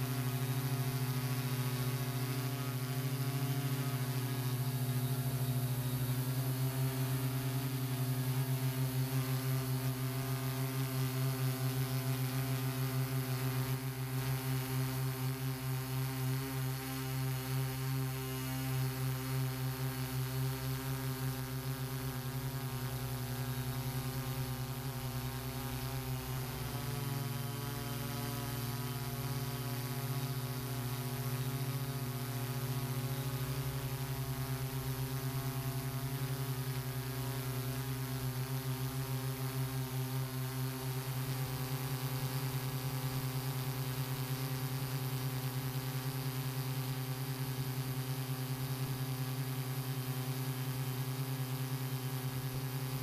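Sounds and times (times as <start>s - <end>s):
drone motors and propellers humming: 0.0s - 53.0s.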